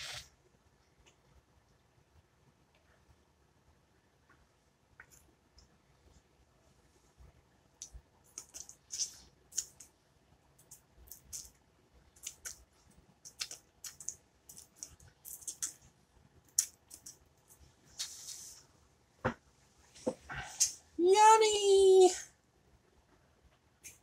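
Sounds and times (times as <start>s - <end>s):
man licking fingers: 8.3s - 9.9s, 12.2s - 12.6s, 13.2s - 15.8s.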